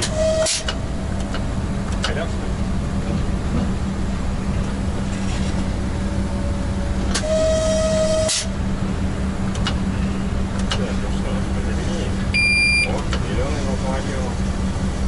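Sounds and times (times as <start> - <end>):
train horn blast: 0.0 - 0.8, 7.1 - 8.6
electric locomotive rumble and hum: 0.0 - 15.0.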